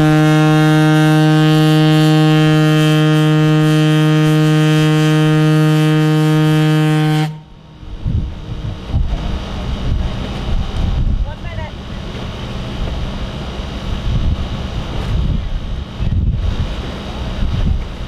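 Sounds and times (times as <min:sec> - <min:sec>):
ship's horn blast: 0:00.0 - 0:08.0
faint wind: 0:00.0 - 0:18.0.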